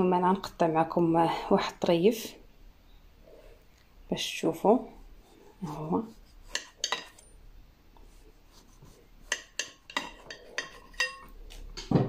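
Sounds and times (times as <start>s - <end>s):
knife clinking on glass: 9.3s - 11.4s.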